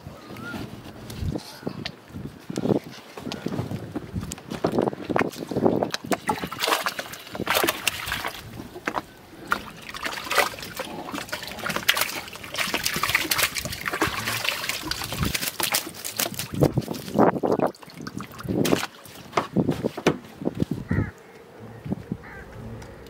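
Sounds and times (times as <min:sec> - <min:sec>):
water dripping and sloshing: 0:04.2 - 0:19.9
water streaming off a net bag: 0:05.5 - 0:19.4.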